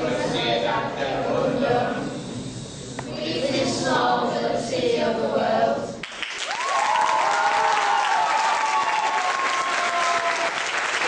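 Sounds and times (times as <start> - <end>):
young voices singing: 0.0 - 6.0
audience applause: 6.0 - 11.0.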